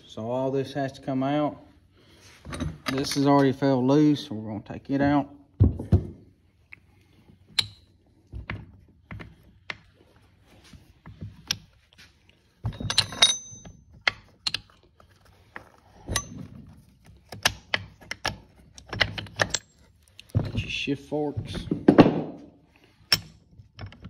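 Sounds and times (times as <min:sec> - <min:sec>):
metal clanking and ringing: 0:12.7 - 0:13.8.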